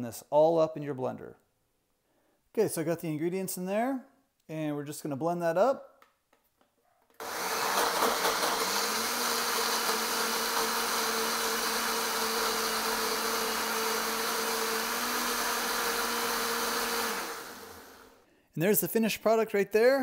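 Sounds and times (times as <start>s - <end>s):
blender running at high speed: 7.2s - 18.2s.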